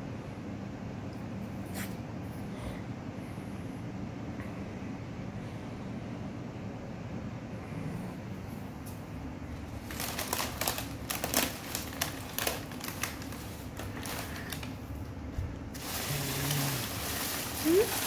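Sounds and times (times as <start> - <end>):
packing paper crackling: 9.7 - 15.1, 15.7 - 18.0.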